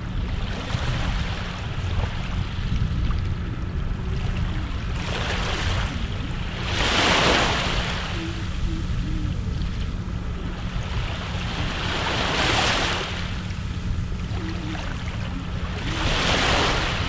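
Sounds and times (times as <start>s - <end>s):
low rumble of wind: 0.0s - 17.0s
sea waves washing in: 0.0s - 17.0s.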